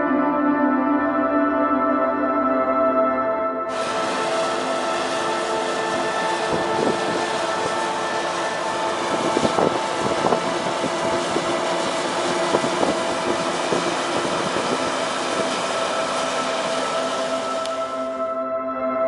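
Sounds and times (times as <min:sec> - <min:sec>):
steam vent hissing: 0:03.7 - 0:18.2.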